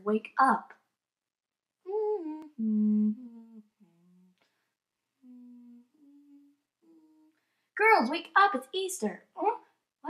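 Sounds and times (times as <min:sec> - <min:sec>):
person humming: 0:01.9 - 0:04.4, 0:05.2 - 0:07.4.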